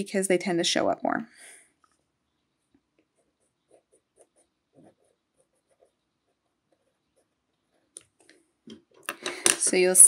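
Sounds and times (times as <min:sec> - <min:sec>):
pencil scratching on paper: 0:02.6 - 0:08.3.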